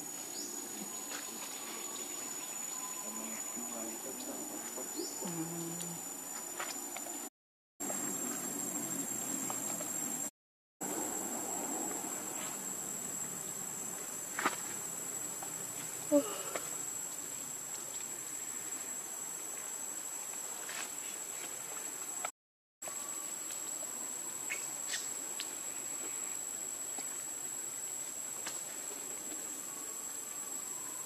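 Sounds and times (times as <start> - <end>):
high-pitched insect drone: 0.0 - 7.2
background hiss: 0.0 - 10.3, 10.9 - 22.3, 22.9 - 31.0.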